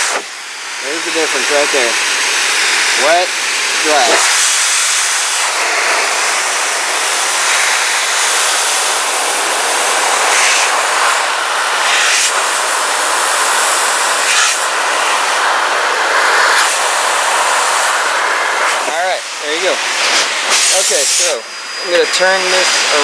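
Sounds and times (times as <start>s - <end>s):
blower dryer rushing air: 0.0s - 23.0s.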